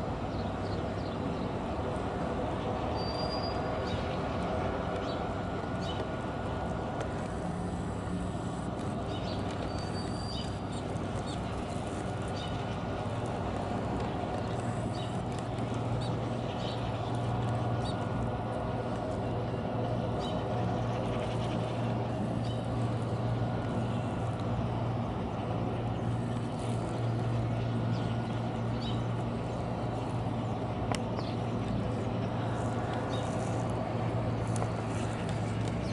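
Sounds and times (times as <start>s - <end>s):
low mechanical hum: 0.0s - 35.9s.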